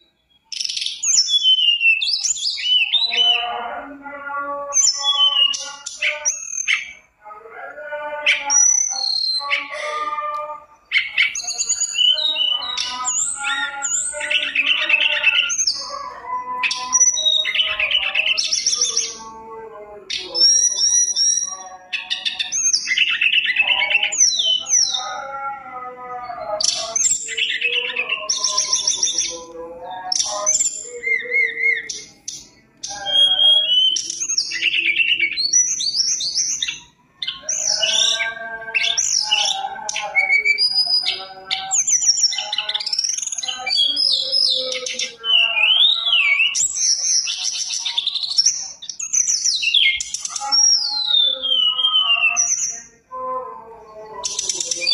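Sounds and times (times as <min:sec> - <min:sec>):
bird singing whistles and trills: 0:00.0 - 0:03.5, 0:04.8 - 0:07.1, 0:08.3 - 0:10.0, 0:10.8 - 0:19.3, 0:20.1 - 0:25.1, 0:26.3 - 0:53.0, 0:53.8 - 0:54.9.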